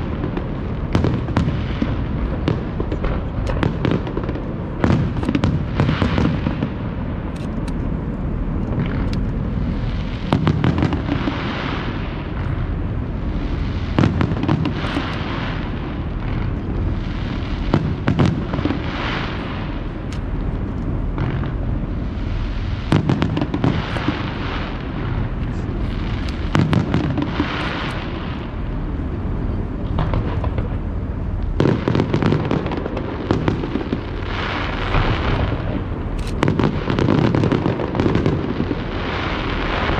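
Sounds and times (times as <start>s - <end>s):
crackling: 0.0s - 28.7s.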